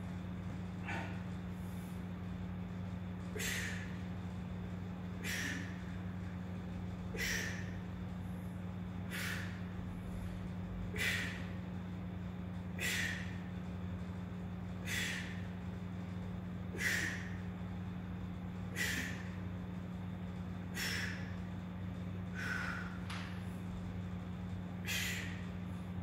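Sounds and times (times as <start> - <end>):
steady low hum: 0.0 - 26.0
man breathing out hard: 5.2 - 5.9, 9.1 - 9.7, 14.8 - 15.5, 20.7 - 21.4, 22.3 - 23.1.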